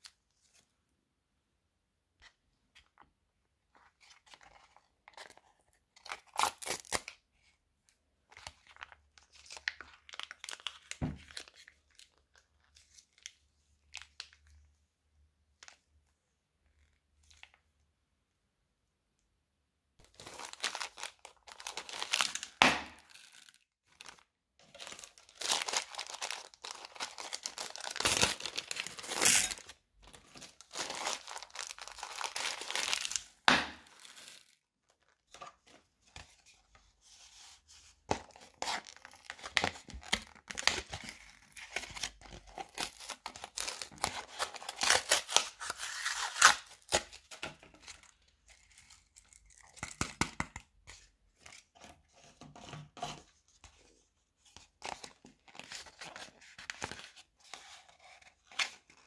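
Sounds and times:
plastic bags crinkling: 20.0 - 34.6.

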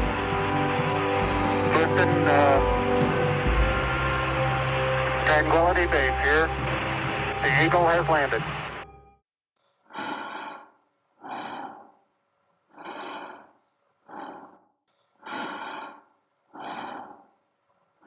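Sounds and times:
breathing in a helmet: 9.9 - 12.0, 12.7 - 17.4.

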